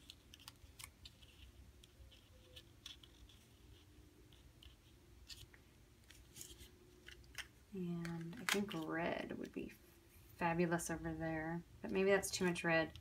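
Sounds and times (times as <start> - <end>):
paper rustling: 0.0 - 7.5.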